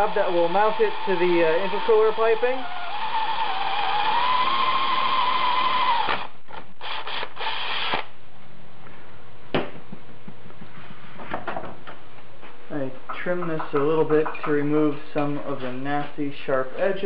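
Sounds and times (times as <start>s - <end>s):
cordless drill whining: 0.0s - 8.0s.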